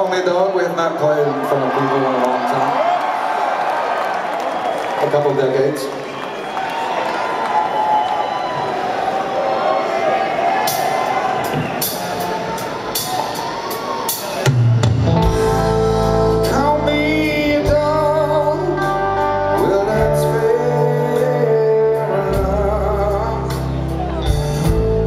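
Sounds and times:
crowd noise: 0:00.0 - 0:25.0
live rock band playing: 0:10.6 - 0:25.0
wavering electric guitar notes: 0:14.5 - 0:25.0.

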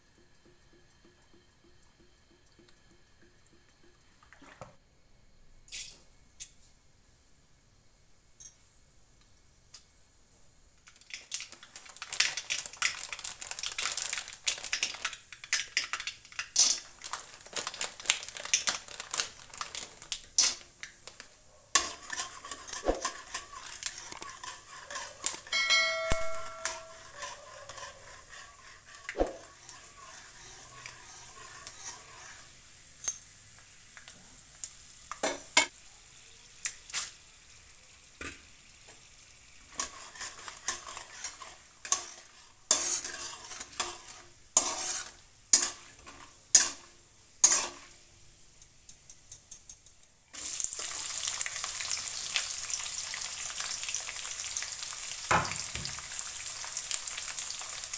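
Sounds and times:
seeds crackling in hot oil: 0:08.7 - 0:57.9
metal spatula scraping pan: 0:21.8 - 0:32.5, 0:39.7 - 0:48.0
ringing clang of pan: 0:25.5 - 0:27.2.

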